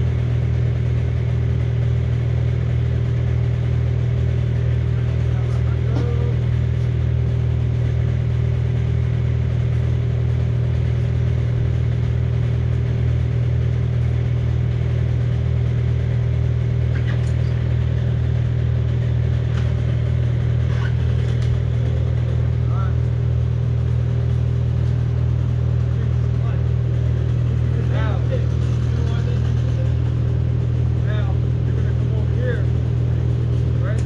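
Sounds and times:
engine idling: 0:00.0 - 0:34.0.

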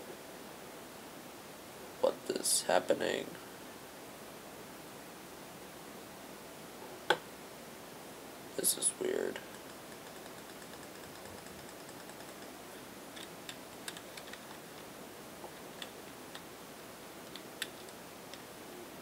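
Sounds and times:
microphone hiss: 0:00.0 - 0:19.0
computer mouse clicks: 0:09.4 - 0:12.5, 0:13.2 - 0:14.9, 0:17.3 - 0:18.4.

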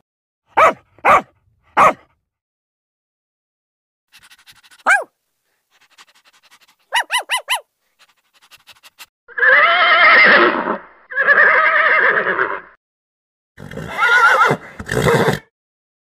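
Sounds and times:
dog yelping: 0:00.6 - 0:02.0, 0:04.7 - 0:05.1, 0:06.9 - 0:07.7
horse whinnying: 0:09.3 - 0:12.8, 0:13.6 - 0:15.5.

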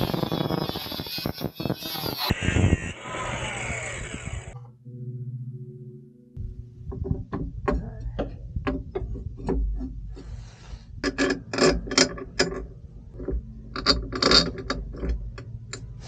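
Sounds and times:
metal knocks: 0:06.4 - 0:10.2
metal bracket and bolts clanking: 0:11.0 - 0:16.0.

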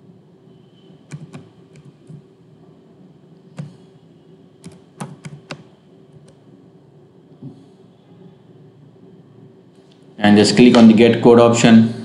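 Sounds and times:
faint low hum: 0:00.0 - 0:12.0
keyboard key clicks: 0:01.1 - 0:02.2, 0:04.6 - 0:06.4.

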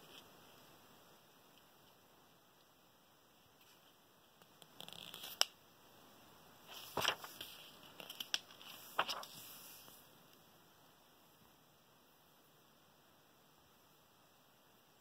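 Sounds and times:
paper pages turning: 0:04.7 - 0:05.5, 0:06.7 - 0:10.0.

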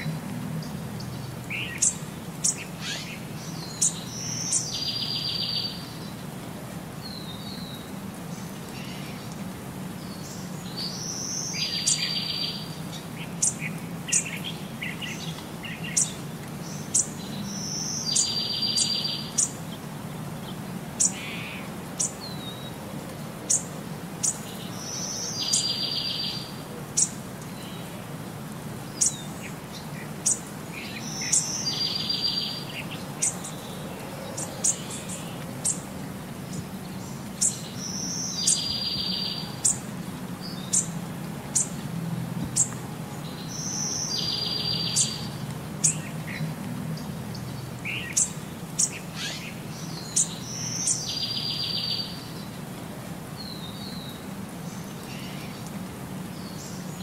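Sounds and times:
bird calls and chirps: 0:00.0 - 0:06.2, 0:10.0 - 0:19.8, 0:23.5 - 0:27.9, 0:29.0 - 0:35.8, 0:36.5 - 0:41.8, 0:42.4 - 0:52.6.

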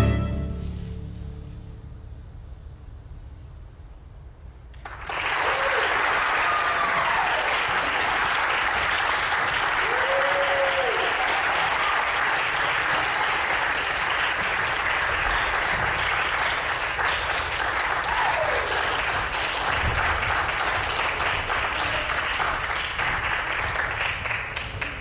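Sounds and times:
audience applauding: 0:04.8 - 0:25.0
long calls from crowd: 0:09.8 - 0:12.4.

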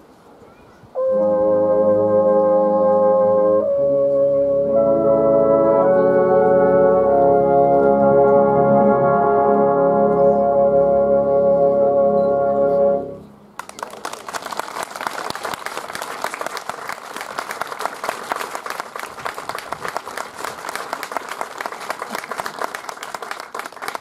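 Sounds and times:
audience applause: 0:13.6 - 0:24.0.

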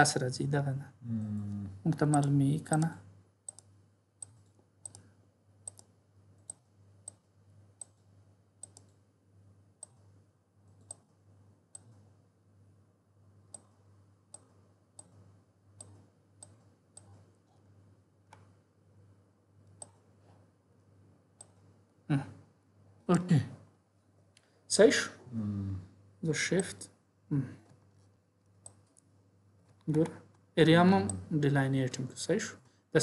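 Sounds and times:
low steady hum: 0:00.0 - 0:33.0
computer mouse clicks: 0:02.0 - 0:09.0, 0:09.8 - 0:10.1, 0:10.7 - 0:12.1, 0:13.5 - 0:17.6, 0:18.3 - 0:18.6, 0:19.6 - 0:20.4, 0:21.4 - 0:21.7, 0:26.6 - 0:26.8, 0:27.6 - 0:30.4.

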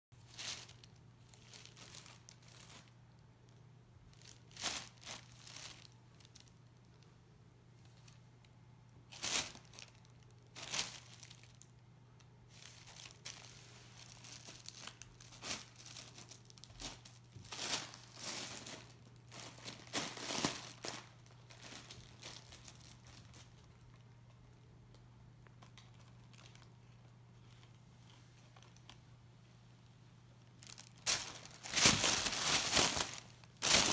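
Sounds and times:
plastic packing bag crinkling: 0:00.2 - 0:03.2, 0:04.0 - 0:07.0, 0:09.1 - 0:11.8, 0:12.5 - 0:24.0, 0:25.6 - 0:27.8, 0:28.4 - 0:29.0, 0:30.6 - 0:33.9
faint steady hum: 0:00.2 - 0:33.9.

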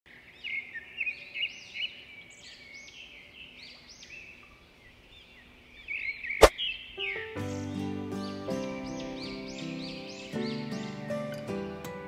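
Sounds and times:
birds chirping: 0:00.1 - 0:11.4.

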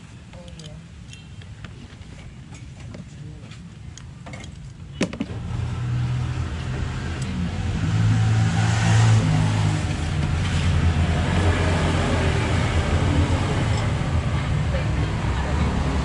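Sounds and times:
vehicle engine humming: 0:05.0 - 0:16.0.

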